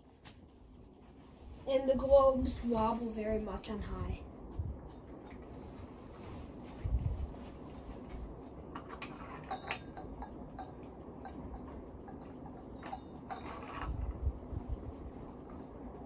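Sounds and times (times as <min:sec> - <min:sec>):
ceiling fan whirring: 0:00.0 - 0:16.0
glass shades clinking against metal: 0:08.8 - 0:14.0.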